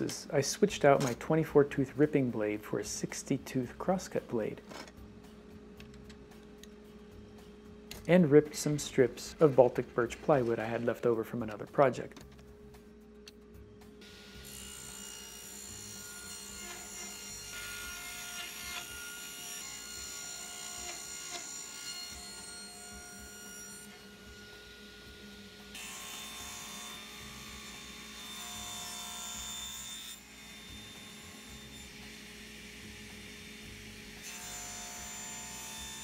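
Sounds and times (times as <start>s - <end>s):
table saw cutting plywood: 14.0s - 36.0s.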